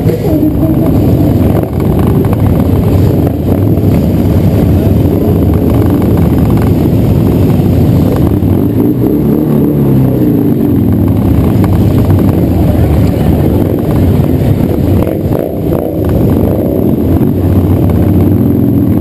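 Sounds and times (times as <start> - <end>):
motorcycle engines running: 0.0 - 19.0.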